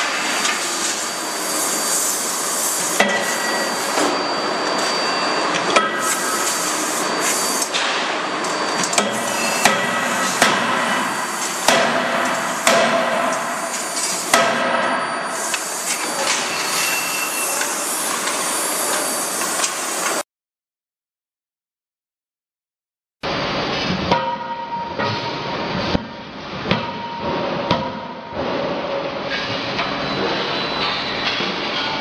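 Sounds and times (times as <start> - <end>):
forge shop noise: 0.0 - 20.2, 23.2 - 32.0
forging hammer heavy blows: 8.9 - 15.6.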